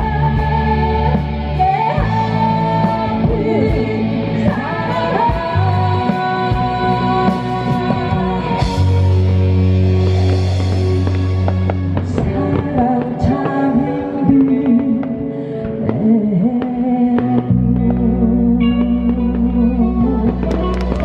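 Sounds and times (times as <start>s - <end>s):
bass guitar: 0.0s - 21.0s
drums: 0.0s - 21.0s
electric guitars: 0.0s - 21.0s
woman singing: 0.0s - 21.0s.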